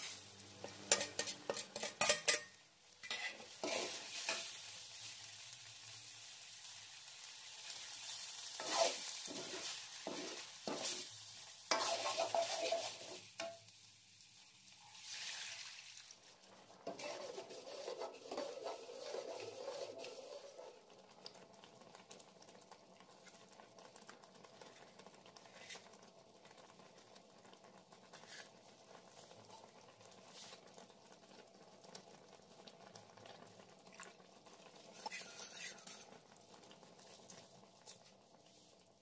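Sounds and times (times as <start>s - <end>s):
metal spoon stirring in pan: 0.0s - 4.7s, 7.7s - 13.7s, 14.8s - 20.9s, 34.8s - 36.4s
water hitting hot pan: 0.0s - 5.2s, 6.7s - 13.8s, 29.4s - 38.3s
gravy simmering: 0.0s - 39.0s.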